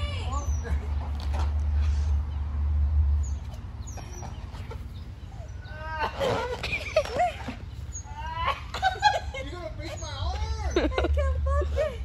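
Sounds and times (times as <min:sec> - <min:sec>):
person laughing: 0:08.2 - 0:09.8, 0:10.6 - 0:12.0.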